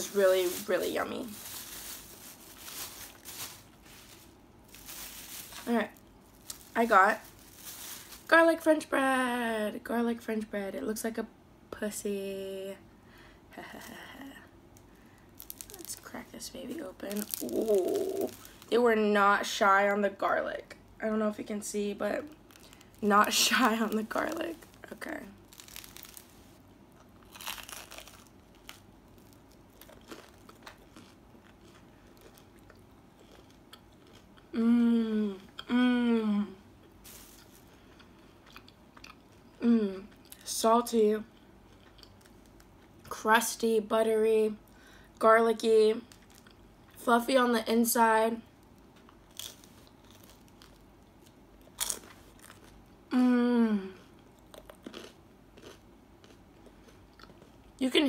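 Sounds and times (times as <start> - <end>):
crunch of bread crust: 0.0 - 8.3, 14.8 - 18.8, 22.2 - 34.4, 36.9 - 39.5, 46.0 - 46.6, 48.6 - 52.8, 54.2 - 57.6
person humming: 17.2 - 18.4, 34.6 - 36.6, 53.1 - 54.0
chewing with small crackles: 27.0 - 34.5, 37.1 - 40.5, 41.3 - 43.0, 54.0 - 57.8.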